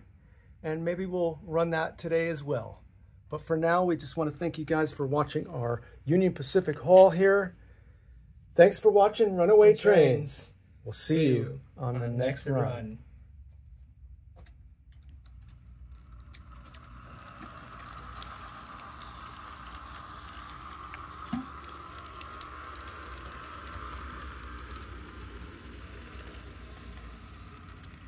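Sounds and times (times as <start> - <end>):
wheels clicking on rails: 15.3 - 28.0
model train motor whirring: 15.5 - 28.0.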